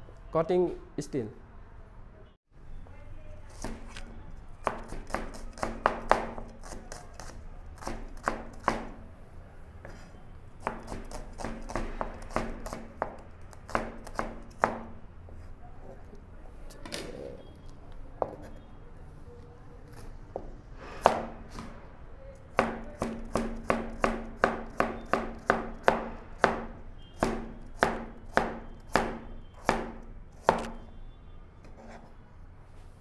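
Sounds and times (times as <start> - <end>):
knife chopping on cutting board: 4.6 - 9.0, 10.6 - 15.0, 21.0 - 21.7, 22.6 - 30.8.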